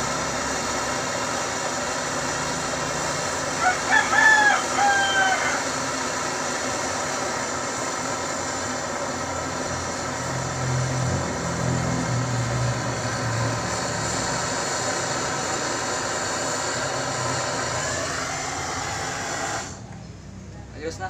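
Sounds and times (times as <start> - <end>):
torch flame hissing: 0.0 - 20.0
low drone: 7.0 - 20.7.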